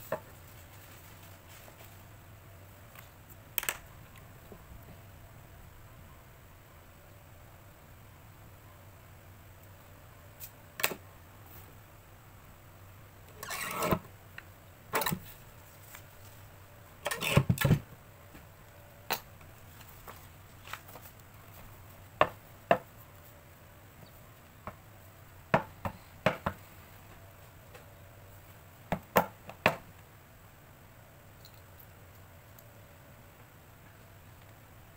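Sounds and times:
paper scraping slide: 13.4 - 14.0.

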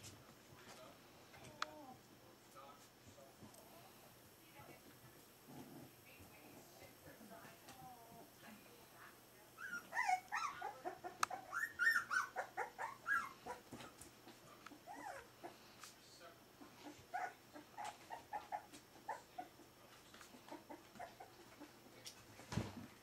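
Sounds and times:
puppies yipping and whimpering: 9.6 - 13.6, 14.9 - 15.3, 16.8 - 19.5.

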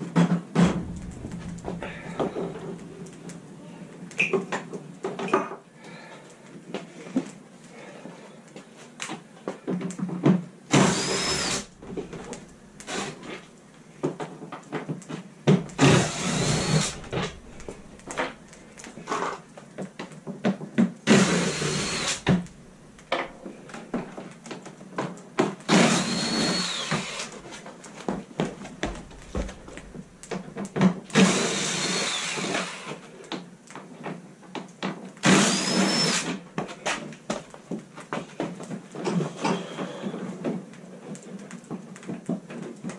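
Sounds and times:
cordless drill motor whine: 10.7 - 12.2, 15.8 - 17.5, 21.1 - 22.4, 25.7 - 27.3, 31.2 - 32.8, 35.2 - 36.3.

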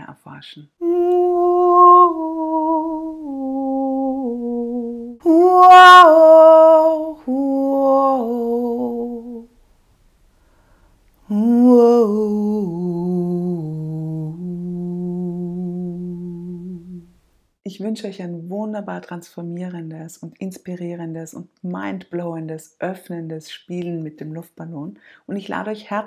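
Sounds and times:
woman humming and singing: 0.8 - 9.5, 11.2 - 17.1.

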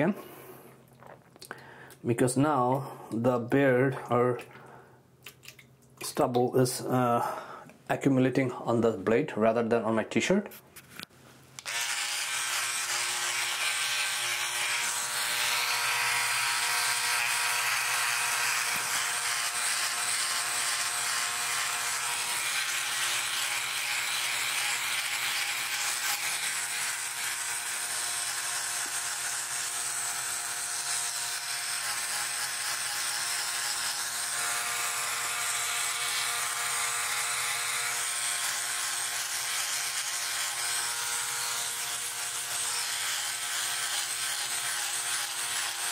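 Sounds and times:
electric shaver buzzing: 11.6 - 45.9.

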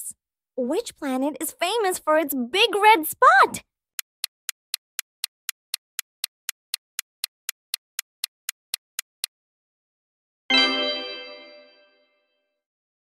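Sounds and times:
countdown timer ticking: 4.0 - 9.3
bright chime: 10.5 - 12.2.

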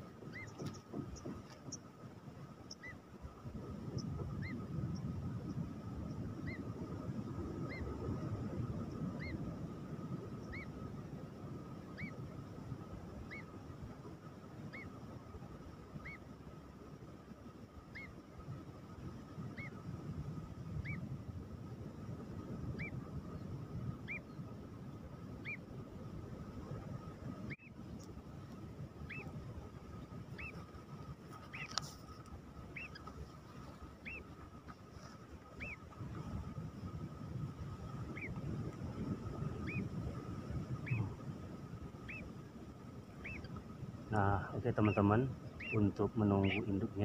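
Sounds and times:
wind on microphone: 0.0 - 47.0
bird chick peeping: 0.3 - 1.8, 29.0 - 29.3, 30.3 - 30.7, 31.4 - 33.2, 34.0 - 34.4, 35.6 - 35.9, 38.1 - 38.4, 40.8 - 41.2, 42.0 - 42.3, 43.2 - 43.6, 44.2 - 46.9.

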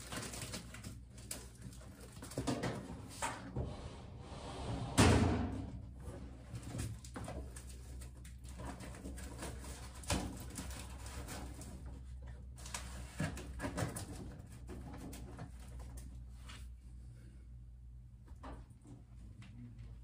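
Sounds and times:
loud thump: 5.0 - 5.7.

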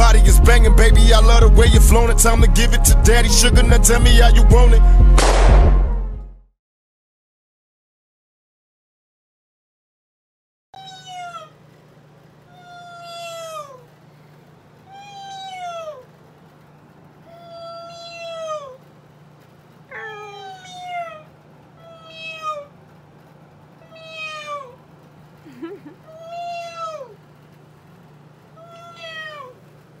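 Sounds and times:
cat meowing: 10.8 - 11.6, 12.5 - 13.9, 14.9 - 16.1, 17.2 - 18.8, 19.9 - 22.8, 23.8 - 24.8, 26.1 - 27.2, 28.6 - 29.6.

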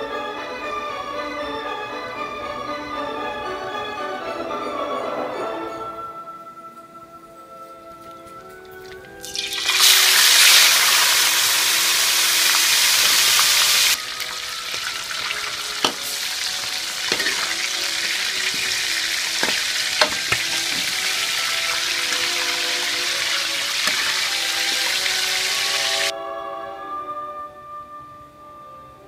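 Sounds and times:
chicken deep-frying sizzle in oil: 8.9 - 26.1
metal utensil clinking on wok: 14.6 - 25.0.

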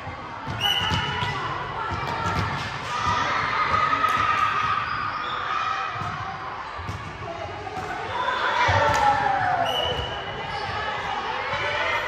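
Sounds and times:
voices in a sports hall: 0.0 - 12.0.

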